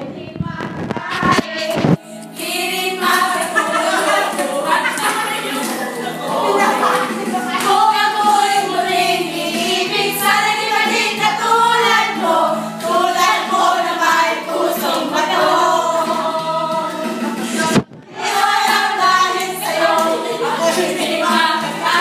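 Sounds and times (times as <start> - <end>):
women singing in unison: 0.1 - 22.0.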